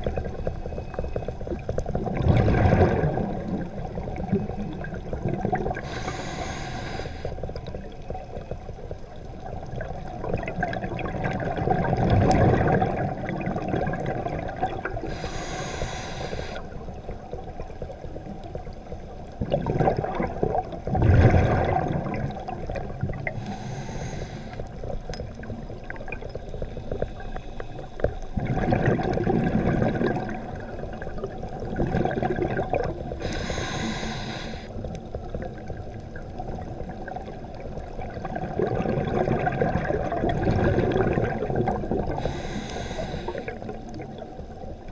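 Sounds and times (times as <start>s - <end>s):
gurgle of exhaled bubbles: 0.0s - 8.7s, 9.3s - 27.2s, 28.2s - 44.9s
hissing regulator inhalations: 5.8s - 7.4s, 15.0s - 16.7s, 23.3s - 24.8s, 33.2s - 34.8s, 42.2s - 43.7s.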